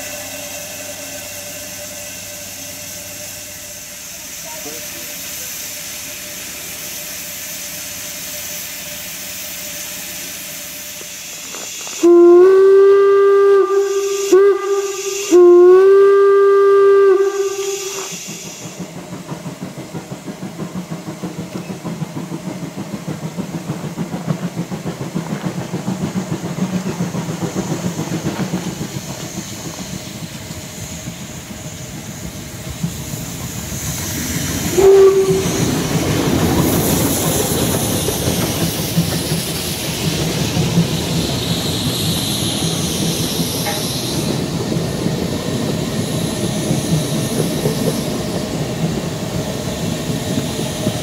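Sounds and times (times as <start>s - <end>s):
steam hissing: 0.0s - 51.0s
steam locomotive chuffing: 0.0s - 51.0s
steam whistle blasts: 11.9s - 18.8s, 34.7s - 36.0s.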